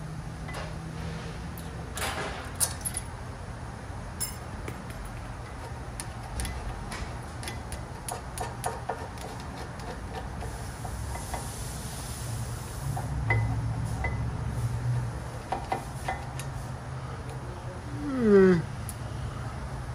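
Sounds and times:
metal tools clinking: 0:02.0 - 0:03.2, 0:04.2 - 0:06.8.

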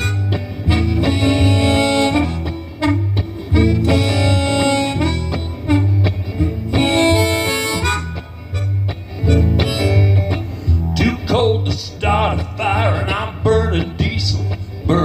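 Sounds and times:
harmonica playing long notes: 0:00.0 - 0:10.8
guitar accompaniment: 0:00.0 - 0:15.0.

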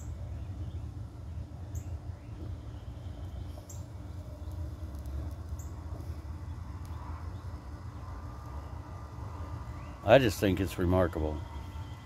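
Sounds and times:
bird chirps: 0:00.0 - 0:04.6.

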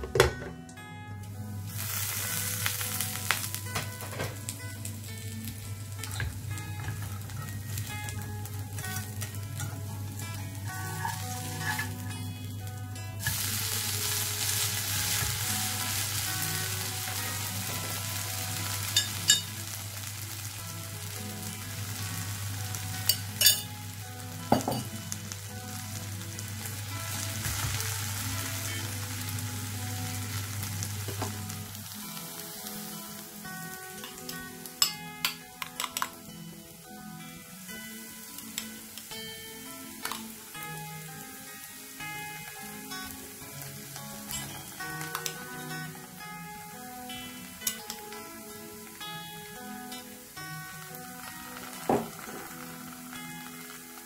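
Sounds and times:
pancake sizzling in oil: 0:01.6 - 0:35.4, 0:36.1 - 0:54.0.

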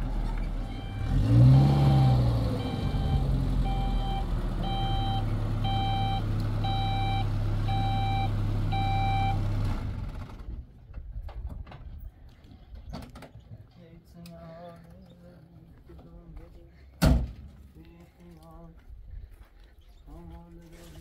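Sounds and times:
truck engine running: 0:00.0 - 0:10.6
reverse alarm beeping: 0:00.7 - 0:09.4.

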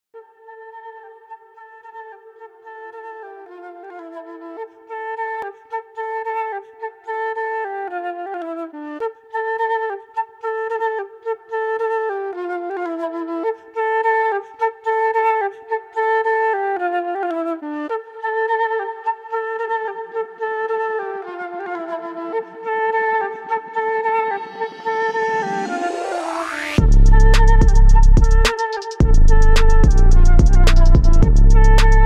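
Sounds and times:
looping flute melody: 0:20.0 - 0:32.0
low sound: 0:23.3 - 0:32.0.

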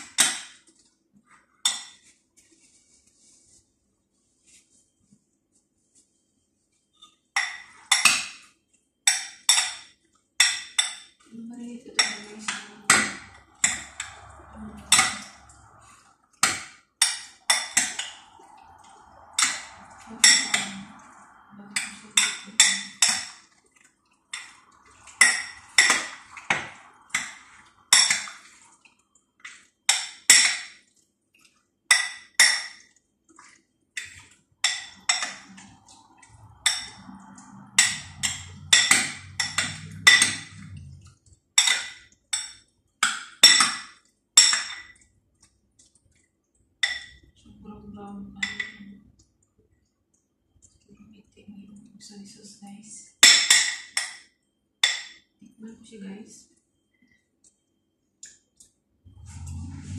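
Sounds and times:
spoon clinking against glass bowl: 0:12.0 - 0:15.8, 0:17.0 - 0:23.4, 0:24.3 - 0:28.6, 0:34.0 - 0:41.0.

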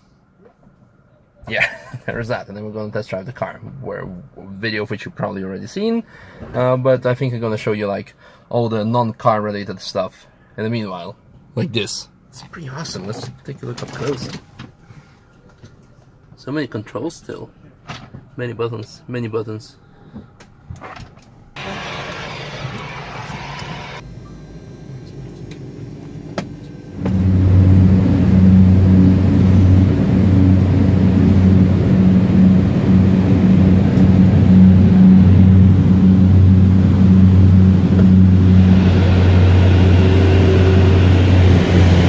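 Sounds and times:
propeller plane cabin drone: 0:21.6 - 0:42.0.

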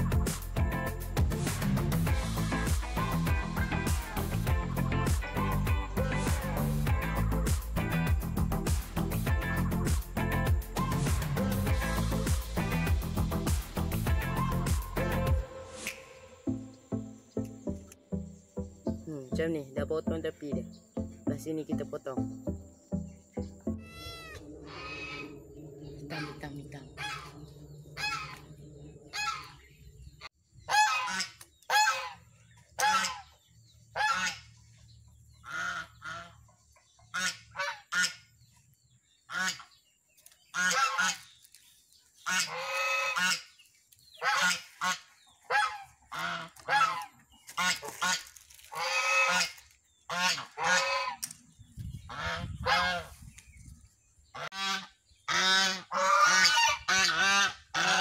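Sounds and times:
geese honking: 0:02.0 - 0:08.3, 0:09.2 - 0:17.4, 0:23.3 - 0:34.6, 0:35.4 - 0:38.3, 0:39.3 - 0:39.8, 0:40.5 - 0:41.4, 0:42.2 - 0:51.4, 0:52.1 - 0:53.2, 0:54.3 - 0:58.0.

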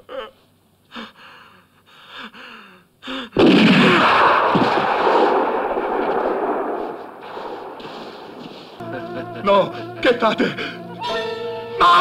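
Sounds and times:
loud gunshot with echo: 0:03.4 - 0:08.8
man moaning faintly: 0:08.8 - 0:11.3.

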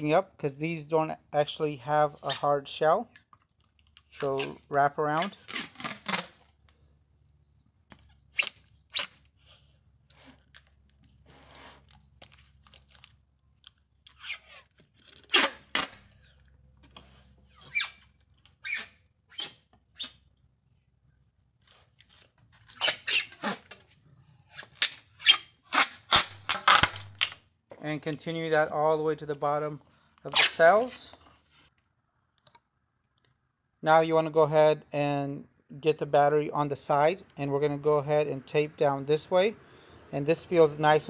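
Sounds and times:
tape peeling off roll: 0:05.2 - 0:06.6, 0:14.1 - 0:20.2, 0:21.6 - 0:23.8, 0:24.5 - 0:27.4.

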